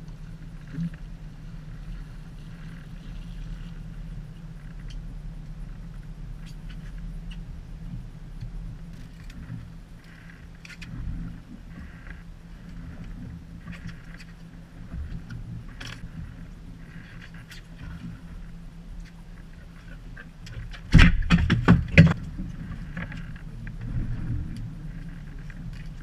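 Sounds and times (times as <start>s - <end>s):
boat engine humming: 0.0s - 26.0s.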